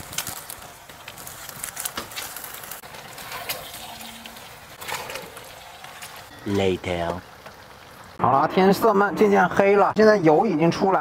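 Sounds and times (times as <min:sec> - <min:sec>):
crackles and pops: 0:00.0 - 0:06.3
fat sizzling in a wok: 0:00.0 - 0:08.5.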